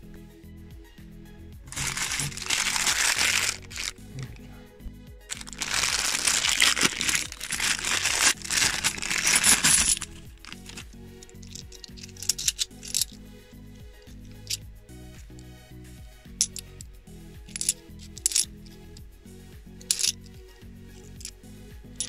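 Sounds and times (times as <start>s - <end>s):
background music: 0.0s - 22.0s
plastic bag crinkling: 1.7s - 4.0s, 5.3s - 10.8s
coins clinking: 1.7s - 4.4s, 5.3s - 13.2s, 14.3s - 14.6s, 16.4s - 16.7s, 17.5s - 18.5s, 19.8s - 20.3s.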